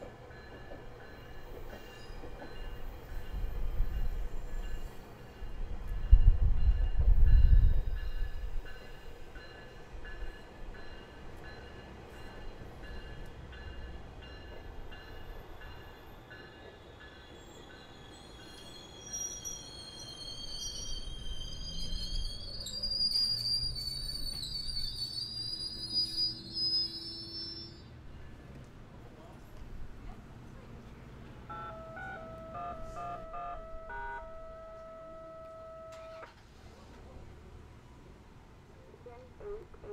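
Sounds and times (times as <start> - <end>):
train rumbling past: 0.0 - 39.9
train wheels squealing on rail: 0.3 - 28.5.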